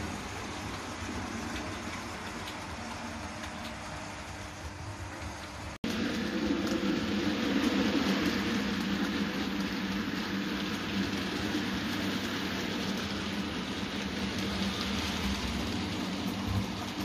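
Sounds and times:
model train wheels rattling: 0:05.4 - 0:17.0.

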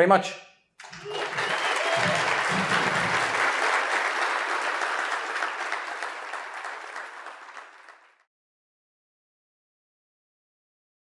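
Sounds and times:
audience applauding: 0:00.8 - 0:08.3.

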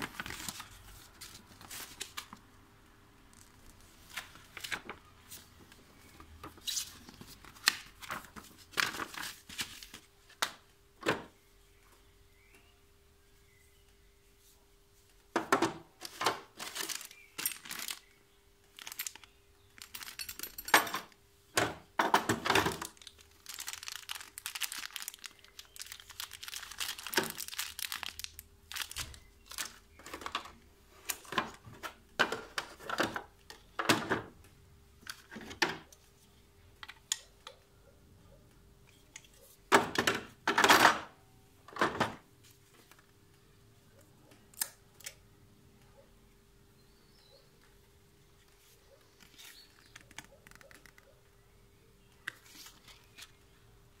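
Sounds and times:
plastic pieces clunking into case: 0:15.4 - 0:18.1, 0:18.7 - 0:34.3
plastic bag crinkling: 0:16.0 - 0:20.6, 0:22.6 - 0:30.2.

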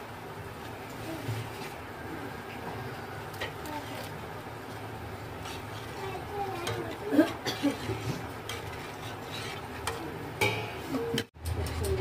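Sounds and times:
ladle scraping metal pot: 0:05.3 - 0:12.0.

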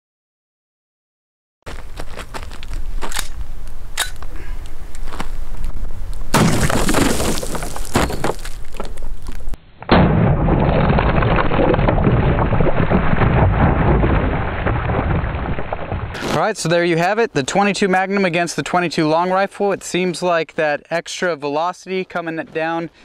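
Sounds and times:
water jugs bursting: 0:06.3 - 0:09.0
water splashing: 0:06.4 - 0:08.0.

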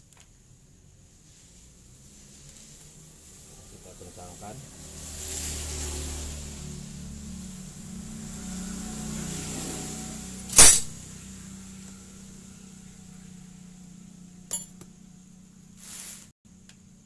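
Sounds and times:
low steady hum: 0:06.8 - 0:15.8
metal clank: 0:10.5 - 0:11.0, 0:14.5 - 0:14.9
metal tools clinking: 0:10.6 - 0:11.0, 0:14.5 - 0:14.8.

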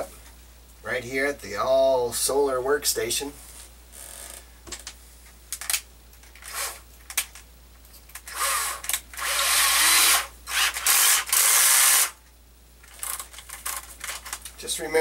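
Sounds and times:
cordless drill running: 0:08.3 - 0:12.2.

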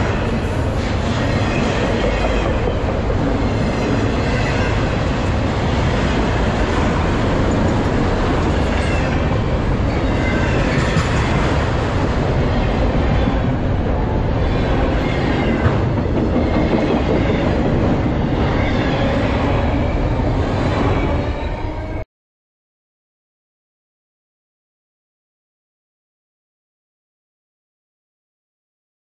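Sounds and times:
train wheels rumbling on rails: 0:00.0 - 0:22.0.

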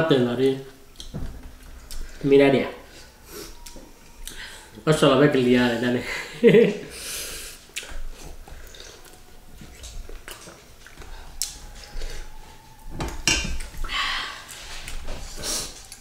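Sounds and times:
chewing: 0:00.8 - 0:02.3, 0:02.9 - 0:04.8, 0:07.6 - 0:16.0.

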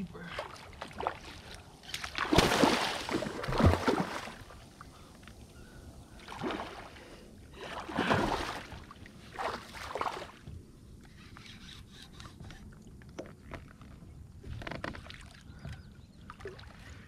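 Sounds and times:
water splashing beside kayak: 0:00.0 - 0:05.5, 0:06.1 - 0:10.7.

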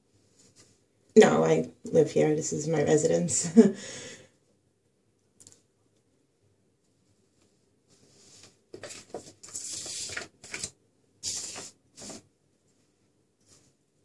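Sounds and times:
short rustling and scraping: 0:11.2 - 0:12.3.

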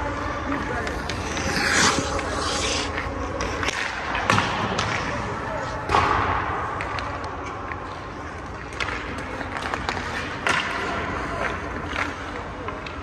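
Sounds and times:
skate blades scraping ice: 0:00.0 - 0:04.6, 0:07.9 - 0:13.0
pucks clacking off sticks: 0:05.9 - 0:13.0.

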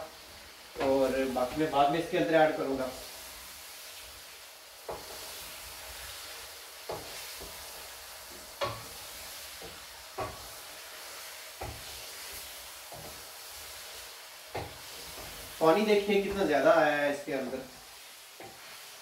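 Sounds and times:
chicken sizzling in oil: 0:00.0 - 0:19.0
wooden spoon knocking a pan: 0:06.9 - 0:07.6, 0:08.6 - 0:09.0, 0:09.6 - 0:10.5, 0:11.6 - 0:12.0, 0:14.5 - 0:15.4.

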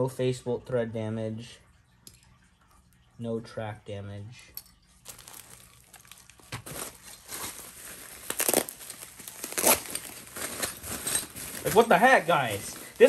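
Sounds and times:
bubble wrap crinkling: 0:05.0 - 0:13.0.

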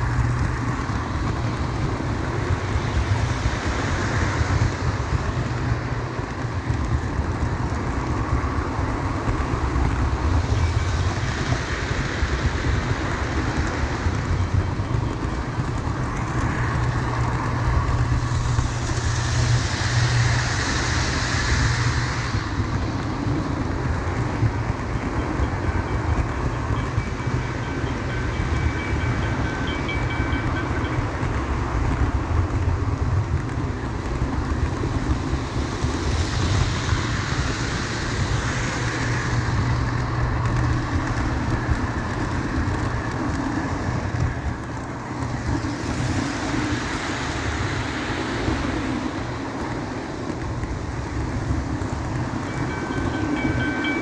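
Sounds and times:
bright hiss: 0:17.4 - 0:31.1, 0:34.7 - 0:41.4.

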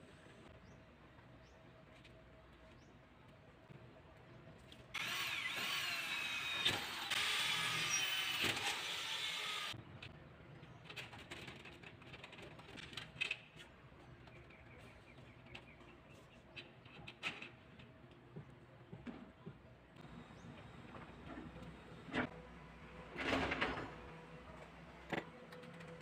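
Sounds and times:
cordless drill whining: 0:05.0 - 0:09.8.

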